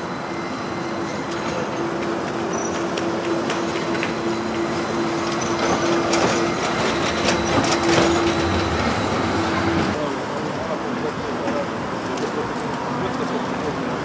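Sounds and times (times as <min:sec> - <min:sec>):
electric tram passing: 0:00.0 - 0:14.0
tram wheel clicks and rattles: 0:05.1 - 0:09.1.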